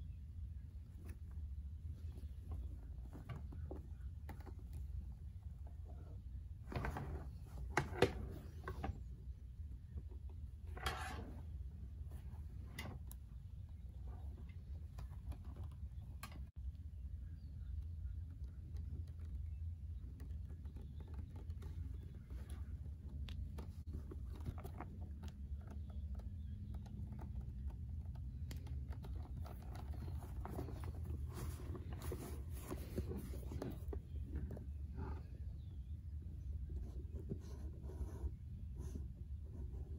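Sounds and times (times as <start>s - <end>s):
steady low hum: 0.0s - 39.9s
small clicks and taps: 18.2s - 31.0s
leather rubbing and rustling: 26.7s - 35.2s.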